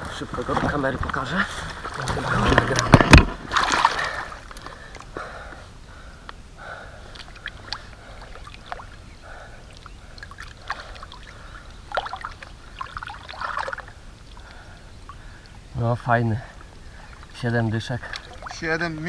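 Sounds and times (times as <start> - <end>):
water sloshing and splashing: 0.2 - 5.1, 7.1 - 15.6, 16.4 - 19.0.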